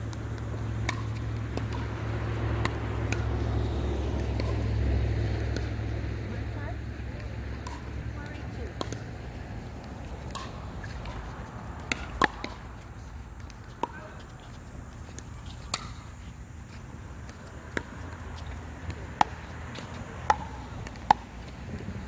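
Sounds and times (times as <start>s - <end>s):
paddles hitting plastic ball: 0.0s - 5.7s, 7.2s - 9.2s, 9.8s - 14.2s, 17.2s - 22.0s
ball bouncing on hard court: 0.0s - 6.0s, 6.6s - 9.1s, 9.8s - 12.8s, 13.4s - 16.1s, 17.2s - 22.0s.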